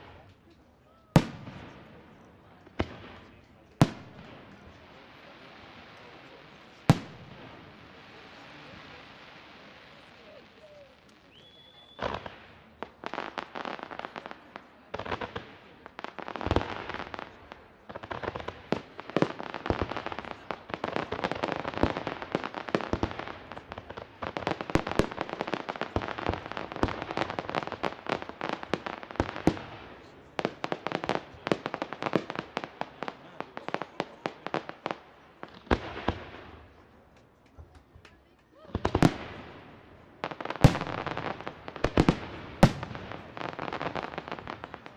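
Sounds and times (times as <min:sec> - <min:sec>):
fireworks bangs and crackling: 0:00.0 - 0:44.9.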